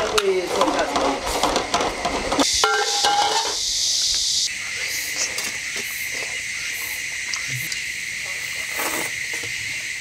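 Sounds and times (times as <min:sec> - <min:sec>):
spatula scraping a wok: 0:00.0 - 0:03.6
steady hiss: 0:00.0 - 0:10.0
food sizzling: 0:00.1 - 0:04.5
insect chirring: 0:01.1 - 0:10.0.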